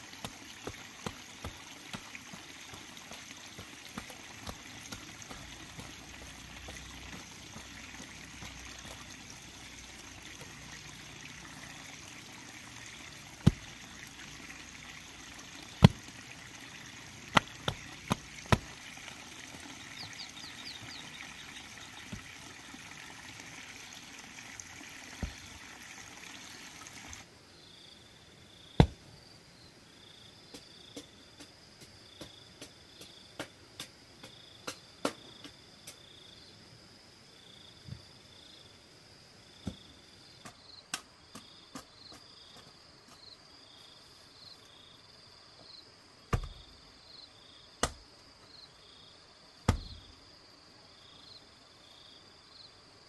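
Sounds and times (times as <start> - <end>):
water-like hiss: 0.0 - 27.3
insects chirping: 0.0 - 53.0
hoe and stones knocking: 0.2 - 9.3, 13.4 - 13.8, 15.7 - 16.1, 17.3 - 18.8.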